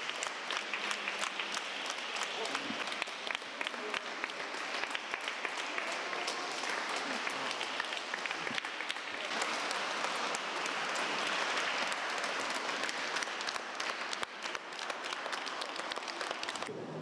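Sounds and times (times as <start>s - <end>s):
children applauding: 0.0s - 16.8s.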